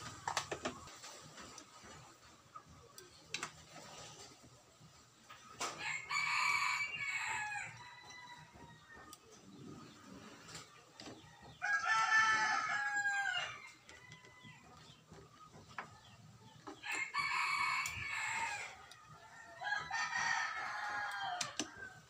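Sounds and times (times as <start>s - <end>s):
rooster crowing: 5.8s - 8.8s, 11.6s - 13.7s, 16.8s - 18.8s, 19.6s - 22.0s.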